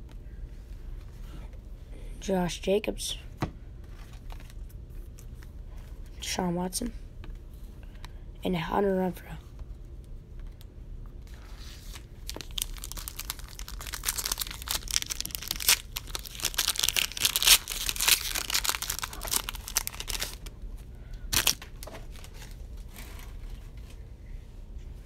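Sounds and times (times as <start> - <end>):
foil wrapper tearing and crinkling: 11.8 - 20.5, 21.3 - 22.6.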